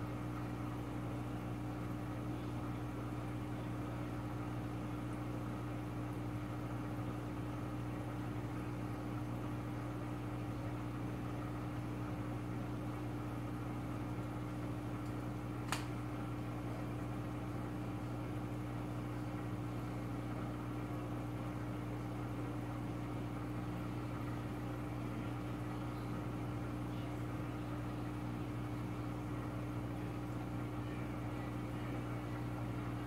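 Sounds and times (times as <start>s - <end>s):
aquarium filter pump humming: 0.0s - 33.0s
short click: 15.0s - 15.9s.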